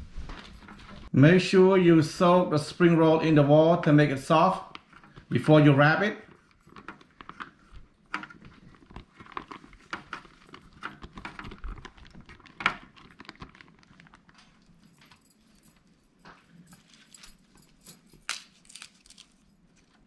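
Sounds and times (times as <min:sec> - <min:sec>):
rice paper clicks and rustles: 0:06.2 - 0:15.2, 0:18.2 - 0:20.0.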